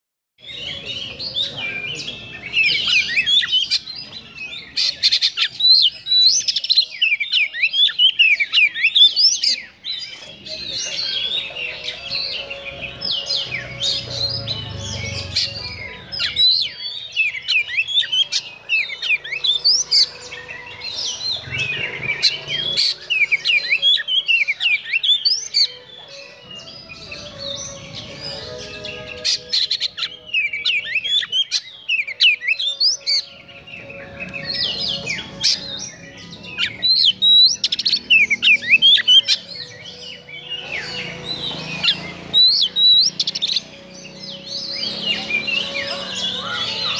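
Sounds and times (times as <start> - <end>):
bird singing: 0.4 - 46.9.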